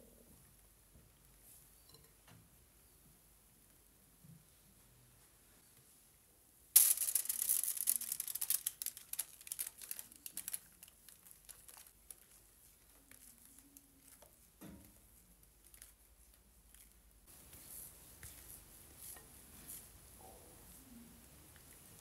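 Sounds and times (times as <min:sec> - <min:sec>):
foil crinkling and crackling: 0:06.8 - 0:14.3.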